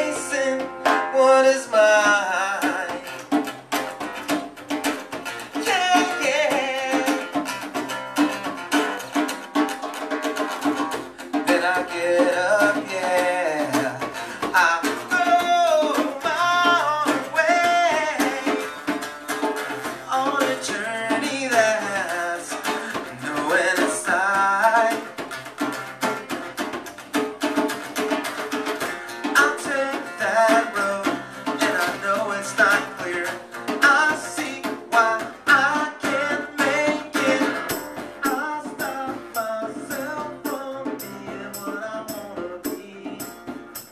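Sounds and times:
hand drums steady beat: 0.0s - 1.4s, 2.0s - 43.9s
man singing: 0.0s - 3.5s, 5.4s - 7.8s, 11.1s - 19.0s, 19.8s - 25.4s, 29.2s - 43.9s
strummed acoustic guitar: 0.0s - 43.9s.

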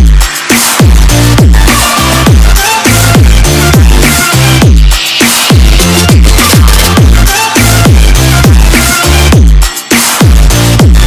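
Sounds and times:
electronic music with heavy beat: 0.0s - 11.0s.

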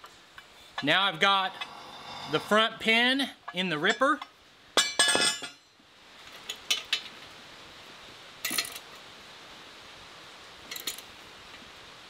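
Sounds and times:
steel pin clinking on metal: 3.5s - 5.6s, 8.4s - 8.9s, 10.7s - 11.1s.

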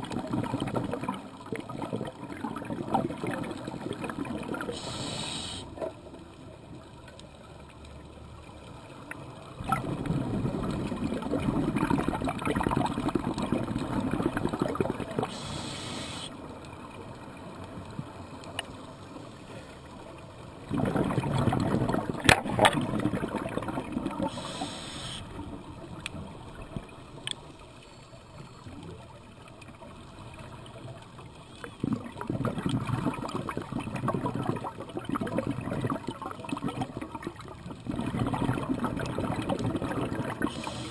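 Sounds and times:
exhaled bubbles gurgling underwater: 0.0s - 6.0s, 9.0s - 18.6s, 20.1s - 27.3s, 28.6s - 40.9s
regulator inhalation hiss: 4.8s - 5.7s, 15.3s - 16.3s, 24.3s - 25.3s, 40.5s - 40.9s.

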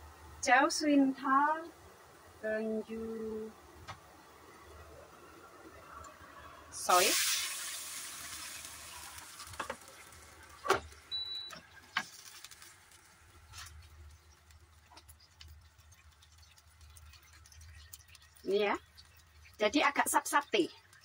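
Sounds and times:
water sizzling in hot oil: 6.1s - 21.0s.

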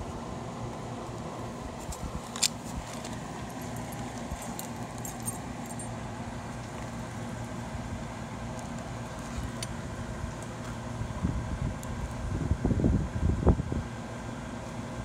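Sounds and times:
low machine hum: 0.0s - 15.0s
metal bracelet jangling: 3.4s - 5.9s.

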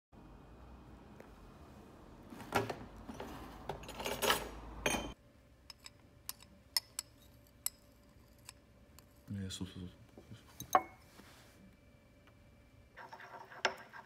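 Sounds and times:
glassware clinking and knocking: 3.1s - 7.8s, 10.6s - 11.0s.

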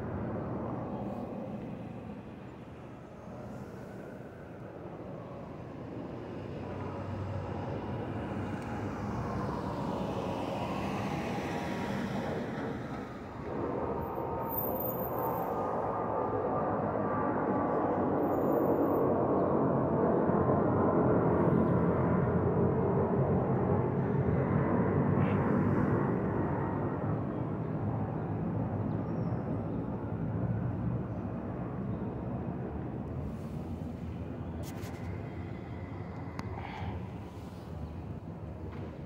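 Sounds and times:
jet engine roar: 0.0s - 18.5s, 19.1s - 28.4s.

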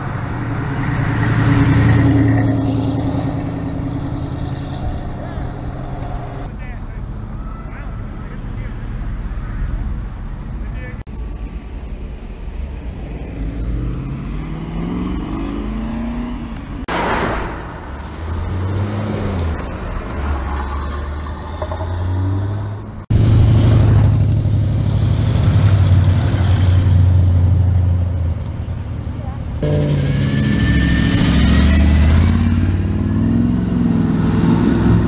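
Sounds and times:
engine speeding up: 0.0s - 6.5s, 12.6s - 28.5s, 29.6s - 35.0s
car engines driving past: 0.0s - 35.0s
short whoosh: 16.9s - 19.3s.

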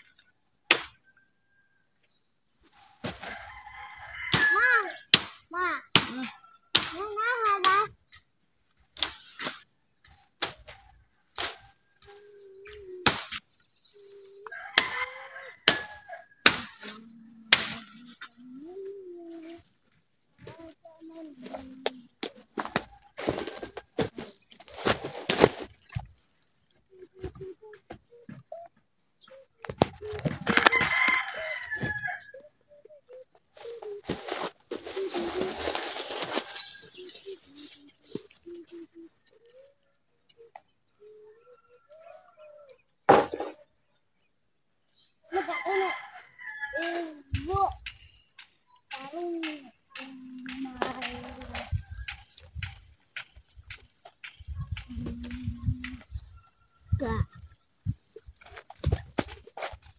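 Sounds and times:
wooden pole hitting branches: 0.7s - 1.0s, 4.3s - 7.8s, 13.0s - 13.5s, 15.7s - 18.2s
rooster crowing: 3.4s - 4.7s, 14.5s - 16.4s, 30.6s - 32.4s, 45.4s - 46.8s
footsteps rustling grass and leaves: 33.6s - 38.7s
low clucking calls: 36.8s - 43.7s.

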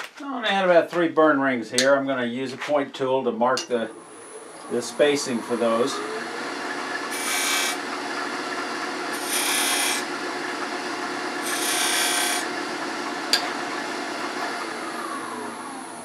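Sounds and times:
tool scraping spinning wood: 3.6s - 14.6s
wood lathe humming: 3.6s - 16.0s.

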